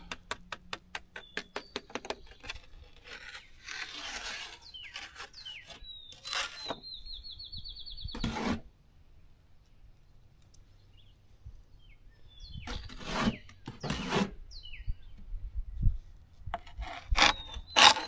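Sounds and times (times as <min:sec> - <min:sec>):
hand scraping block wall: 0:00.0 - 0:06.9, 0:08.1 - 0:08.7, 0:12.7 - 0:14.4, 0:16.5 - 0:18.0
songbird chirping and trilling: 0:01.1 - 0:03.7, 0:04.4 - 0:08.5, 0:10.0 - 0:15.4, 0:17.1 - 0:18.0.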